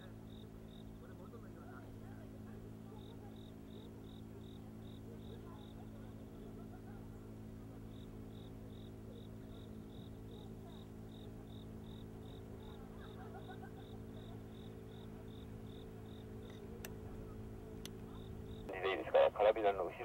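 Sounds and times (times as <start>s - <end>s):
faint steady hum: 0.0s - 20.0s
insect chirping: 0.2s - 0.9s, 3.0s - 5.8s, 7.9s - 16.6s, 18.1s - 18.7s.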